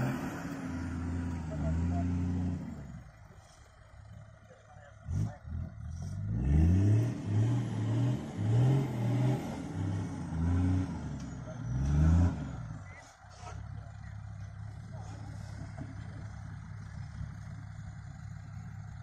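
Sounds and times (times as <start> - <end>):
car engine revving: 0.0 - 3.1, 4.8 - 14.1.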